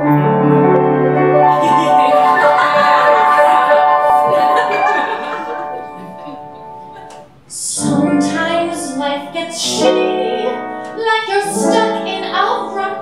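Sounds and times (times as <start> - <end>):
woman singing: 7.5 - 13.0.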